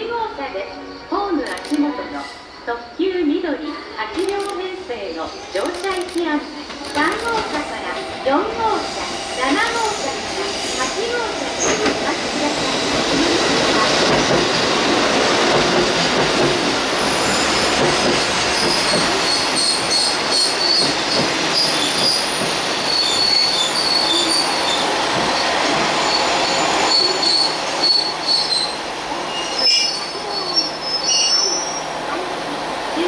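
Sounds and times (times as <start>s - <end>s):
train running noise: 0.0s - 33.0s
train wheels squealing: 17.1s - 31.9s.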